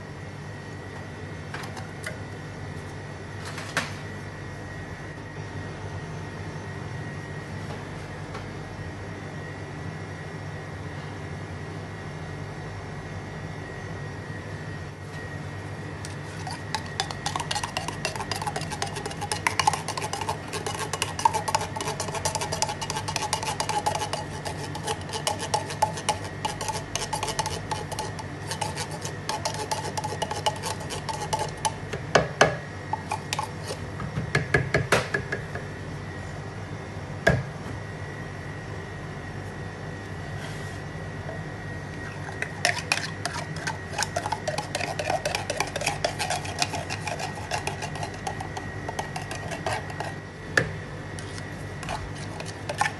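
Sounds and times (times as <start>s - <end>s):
utensil scraping in a blender jug: 16.0s - 31.9s, 32.9s - 33.9s, 42.1s - 50.2s, 51.2s - 52.9s.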